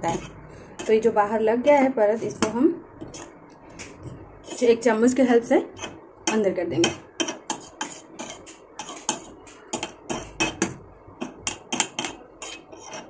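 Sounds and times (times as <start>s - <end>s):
spoon clinking and scraping a pan: 5.8s - 13.0s.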